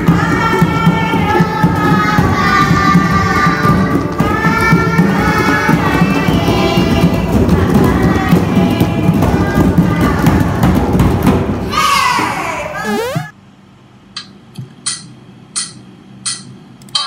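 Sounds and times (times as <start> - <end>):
people singing: 0.0 - 10.8
hand drums beating: 0.0 - 11.8.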